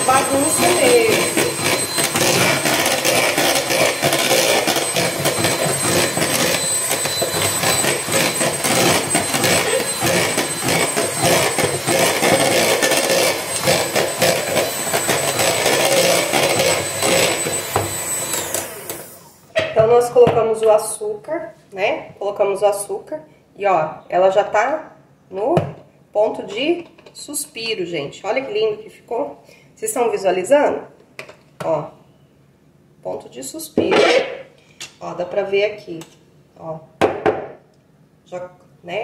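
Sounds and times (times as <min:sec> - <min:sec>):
electric hand mixer running: 0:00.0 - 0:19.4.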